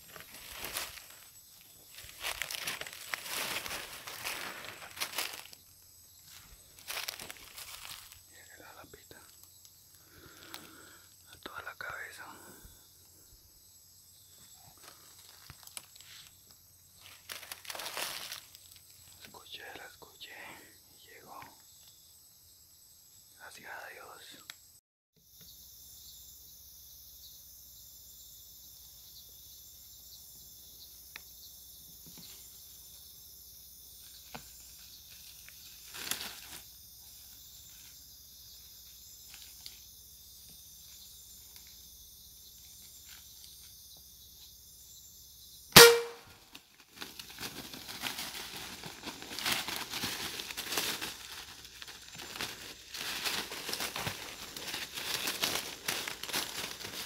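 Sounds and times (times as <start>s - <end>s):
leaves and brush rustling: 0.0s - 11.1s, 14.4s - 19.4s, 33.9s - 43.9s, 45.8s - 57.0s
air rifle shot: 45.8s - 46.2s.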